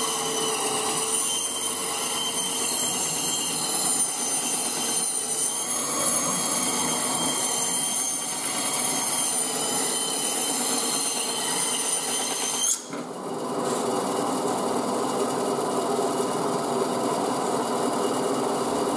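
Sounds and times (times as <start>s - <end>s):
band saw cutting meat: 0.0s - 13.0s.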